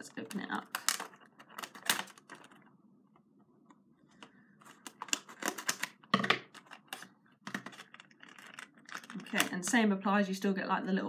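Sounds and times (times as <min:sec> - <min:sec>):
packaging clicks and crinkles: 0:00.1 - 0:02.7, 0:04.6 - 0:09.6
cardboard rustling: 0:00.5 - 0:02.7.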